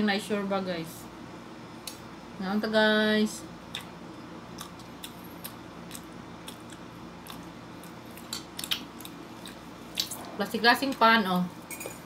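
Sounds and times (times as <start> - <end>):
soft eating sounds: 3.4 - 12.0.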